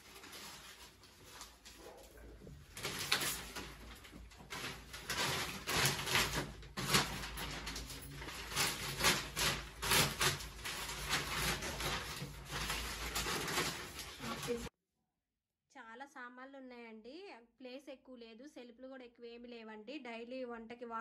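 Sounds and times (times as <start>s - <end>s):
paper rustling and crinkling: 0.0s - 14.7s.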